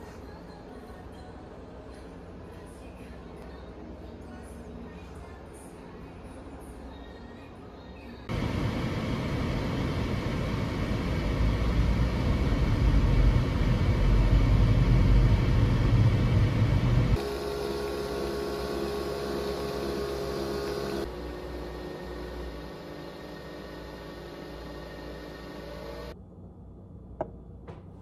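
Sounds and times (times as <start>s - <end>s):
coffee machine humming whir: 8.2s - 26.2s
car road and engine noise: 8.3s - 21.1s.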